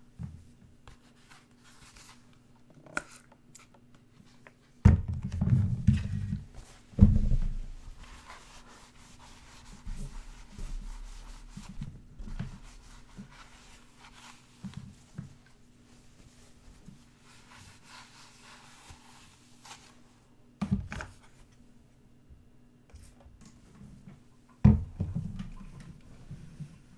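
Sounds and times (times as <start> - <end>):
cloth rubbing: 7.8 - 20.2.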